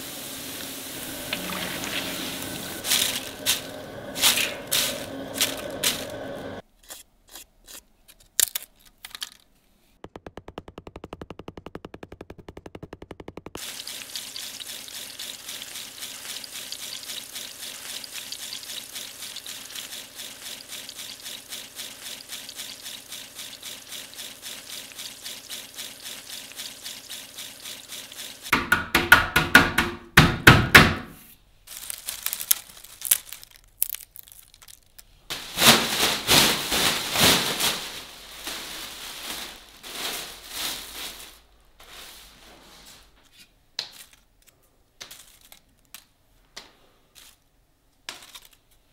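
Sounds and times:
potato slices sizzling in oil: 0:00.0 - 0:06.6, 0:13.6 - 0:28.5
crisp chips rustling and crunching: 0:01.0 - 0:06.4, 0:31.6 - 0:42.4, 0:45.1 - 0:46.1, 0:48.1 - 0:48.8.

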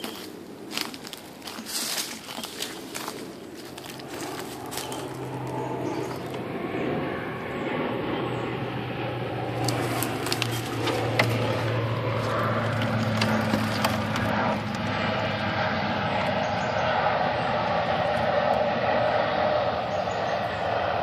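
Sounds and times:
steady low hum: 0:00.0 - 0:21.0
sharp clicks and crackles: 0:09.6 - 0:14.9.

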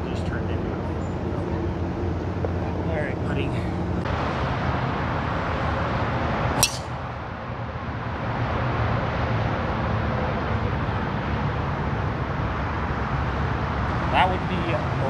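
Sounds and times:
outdoor background rumble: 0:00.0 - 0:15.0
golf club striking ball: 0:06.6 - 0:07.0.

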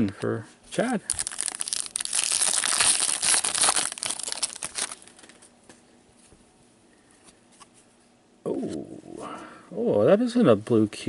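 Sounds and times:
foil wrapper crinkling: 0:01.1 - 0:05.5
faint handling sounds: 0:04.2 - 0:08.8.

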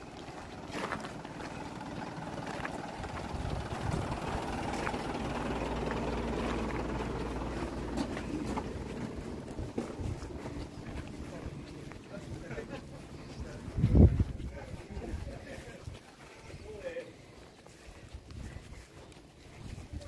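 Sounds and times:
engine idling: 0:00.0 - 0:14.7
footsteps crunching on gravel: 0:00.0 - 0:20.0.

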